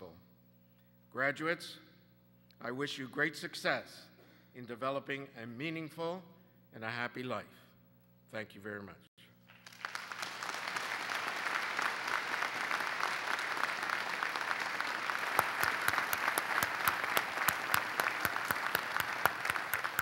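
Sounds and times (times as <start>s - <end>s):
audience applauding: 9.5s - 20.0s.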